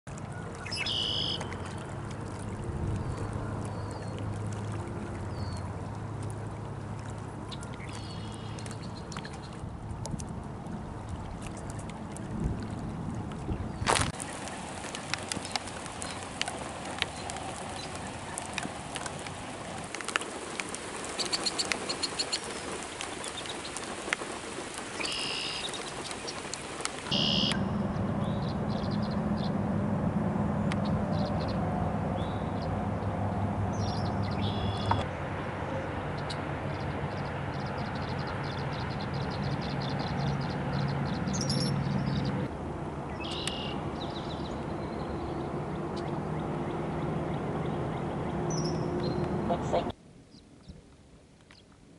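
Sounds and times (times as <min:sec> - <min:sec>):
low steady hum: 0:00.1 - 0:20.0, 0:27.1 - 0:50.5
birds chirping: 0:00.3 - 0:01.9, 0:07.4 - 0:09.6, 0:24.9 - 0:29.6, 0:30.6 - 0:35.1, 0:35.7 - 0:50.4.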